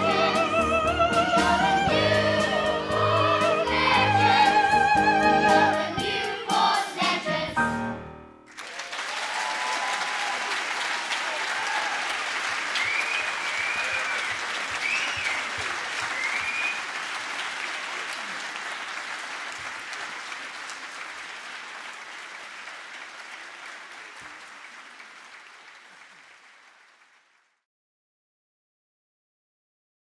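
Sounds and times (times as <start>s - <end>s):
high cheers: 8.5s - 17.0s
audience applauding: 8.5s - 27.6s.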